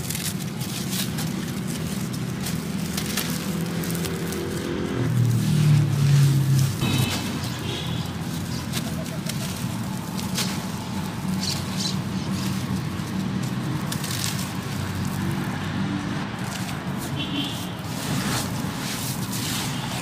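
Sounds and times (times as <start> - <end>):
cement chunks crunching: 0.0 - 15.7.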